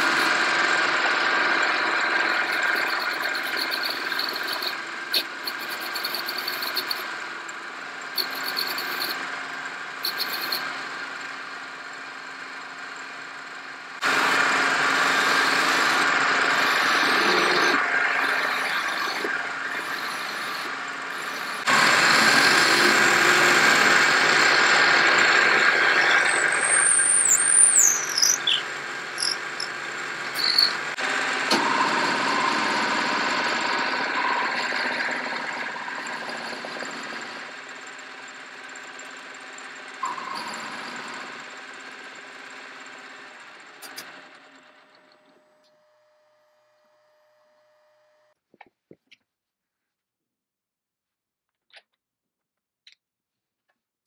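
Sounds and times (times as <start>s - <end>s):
lathe cutting wood: 0.0s - 39.8s.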